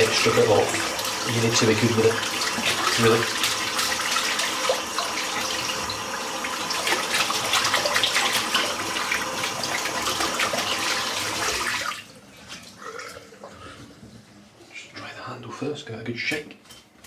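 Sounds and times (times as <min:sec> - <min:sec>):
tap water running into sink: 0:00.0 - 0:12.1.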